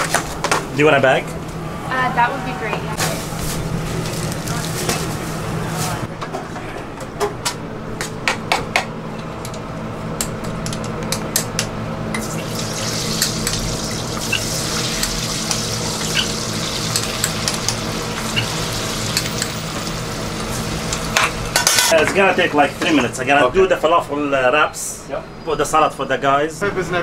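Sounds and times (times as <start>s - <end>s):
hot oil sizzling: 12.2s - 22.0s.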